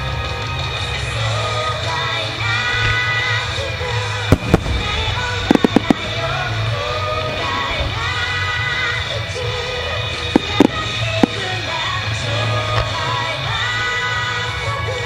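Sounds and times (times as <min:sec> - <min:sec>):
loud rock song with singing: 0:00.0 - 0:15.0
firework shells bursting: 0:04.2 - 0:08.3, 0:10.3 - 0:12.0.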